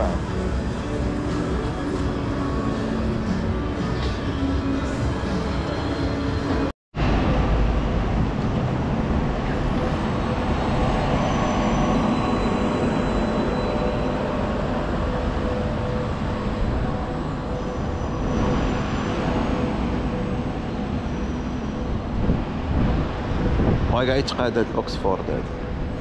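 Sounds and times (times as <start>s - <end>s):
busy city street traffic: 0.0s - 26.0s.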